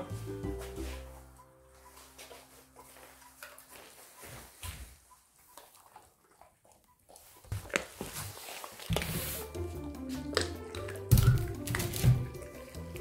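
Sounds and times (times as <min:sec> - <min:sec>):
background music: 0:00.0 - 0:04.0, 0:08.9 - 0:13.0
dog crunching on bone: 0:05.4 - 0:09.2.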